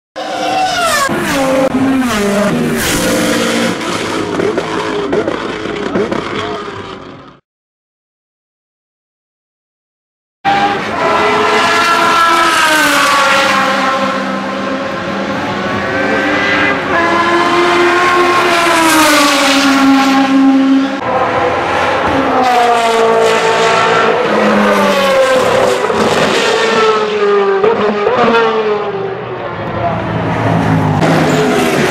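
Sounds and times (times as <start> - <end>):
race cars accelerating: 0.2 - 7.4, 10.5 - 31.9
racing car engines at speed: 0.2 - 7.4, 10.5 - 31.9.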